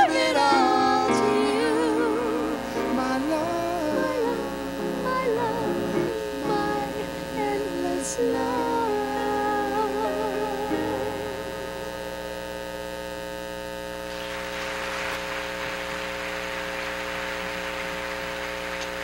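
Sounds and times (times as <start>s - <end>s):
man and woman singing duet: 0.0s - 11.8s
hiss-like noise: 0.0s - 12.2s
electrical mains hum: 0.0s - 19.0s.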